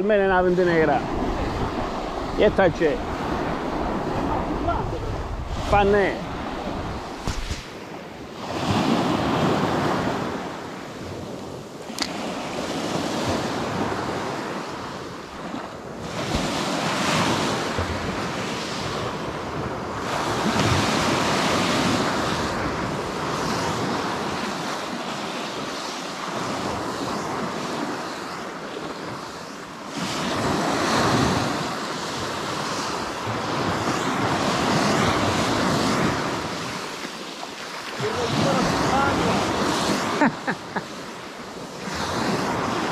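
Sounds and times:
small waves breaking on beach: 0.0 - 42.9
wind on microphone: 0.0 - 42.9
sharp click: 11.9 - 12.2.

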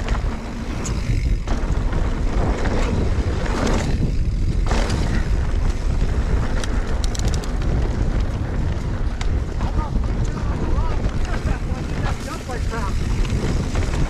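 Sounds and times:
bike rolling on dirt trail: 0.0 - 14.0
wind buffeting microphone: 0.0 - 14.0
quick clicks: 6.4 - 7.8.

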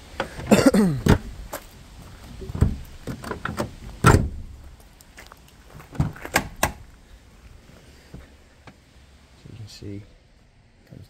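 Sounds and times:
knocks and clunks: 0.1 - 4.6, 5.8 - 6.9
car door opening: 0.2 - 1.6, 2.4 - 4.6, 5.9 - 6.9
footsteps crunching on gravel: 3.8 - 7.6.

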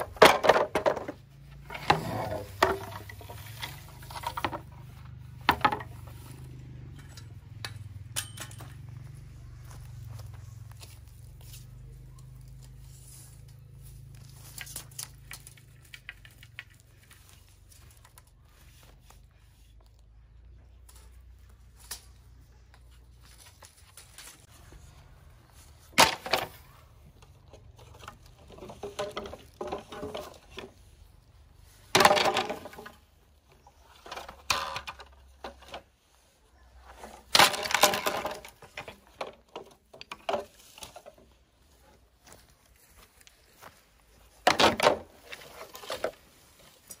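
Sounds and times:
wood cracking and splintering: 14.2 - 18.3, 25.9 - 30.9, 31.8 - 35.9, 37.0 - 41.2, 44.4 - 47.0.

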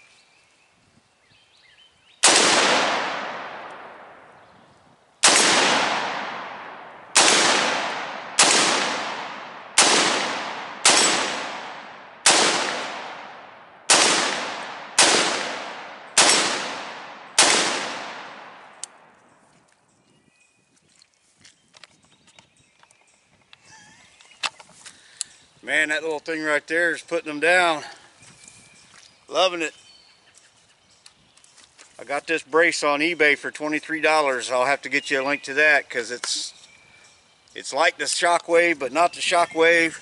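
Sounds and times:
gunshots with echo: 2.2 - 4.4, 5.2 - 18.8.

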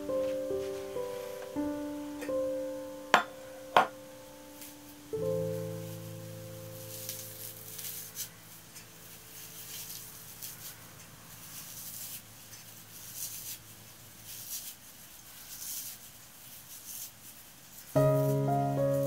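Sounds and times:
dried plant crackling: 4.5 - 19.0.

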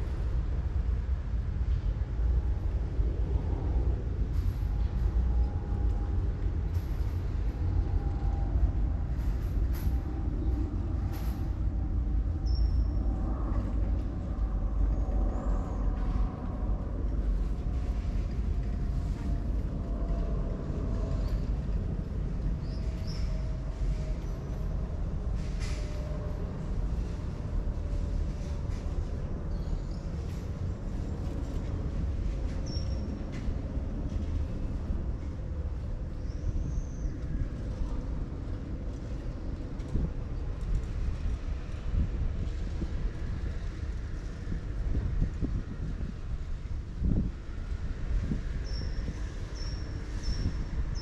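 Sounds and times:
low engine rumble: 0.0 - 51.0.

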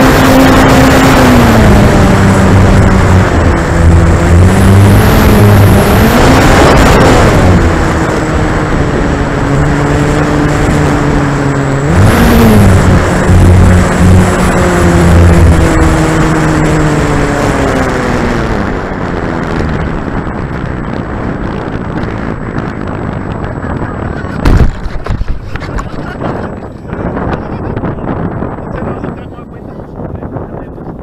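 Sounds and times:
electric motor and propeller hum: 0.0 - 31.0
wind buffeting microphone: 0.0 - 31.0
plane thumping onto grass: 24.4 - 26.0
knocks and rattles: 24.4 - 26.9.

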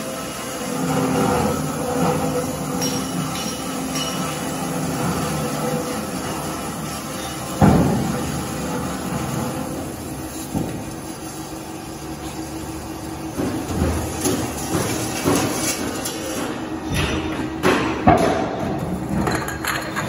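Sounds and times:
pipe cutting machine humming: 0.0 - 20.0
metallic knocks and clatters: 1.9 - 5.3, 13.4 - 20.0.

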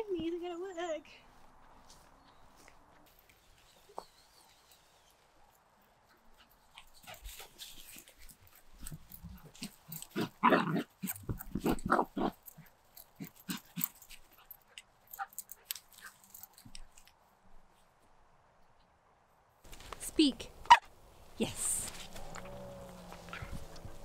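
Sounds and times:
footsteps in grass: 0.0 - 10.3, 19.6 - 24.0.

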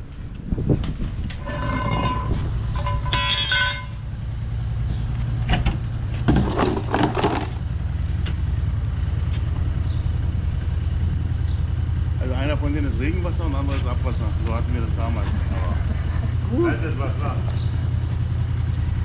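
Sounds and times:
vehicle engine running: 0.0 - 19.0
metal bucket rattling: 1.4 - 3.4, 6.2 - 7.6
manhole cover scraping: 1.4 - 4.0, 5.5 - 7.8.

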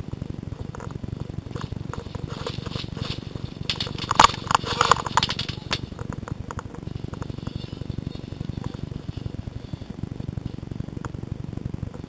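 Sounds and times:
sharp clicks and cracks: 0.6 - 9.4
body-worn camera rattling: 0.6 - 9.9.

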